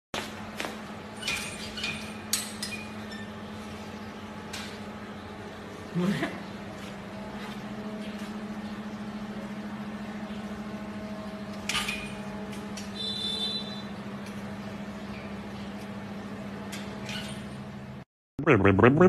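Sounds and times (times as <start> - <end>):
low electrical motor hum: 0.2 - 18.0.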